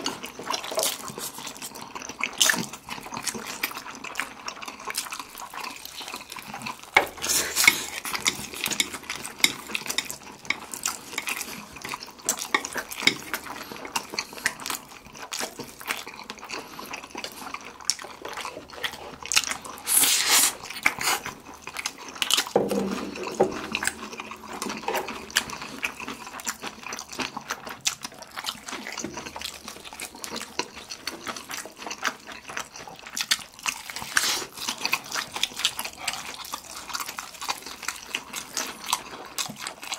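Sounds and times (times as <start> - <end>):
wet chewing and lip smacks: 0.0 - 39.9
loud noodle slurp: 19.7 - 22.2, 34.0 - 34.6.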